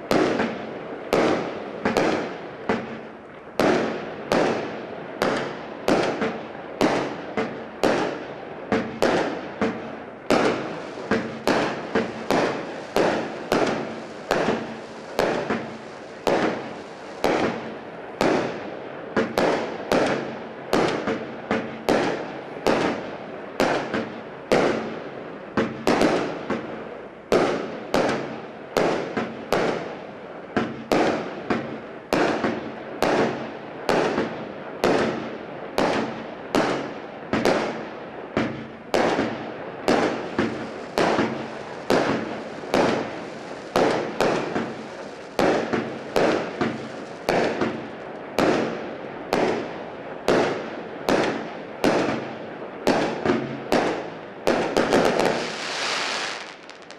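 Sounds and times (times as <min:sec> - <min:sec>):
firework cake bangs: 0:08.8 - 0:18.6, 0:38.4 - 0:49.7.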